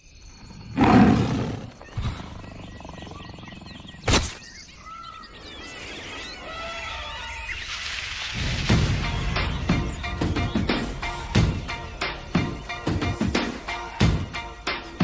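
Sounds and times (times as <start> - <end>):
gliding chirping calls: 0.1 - 8.4.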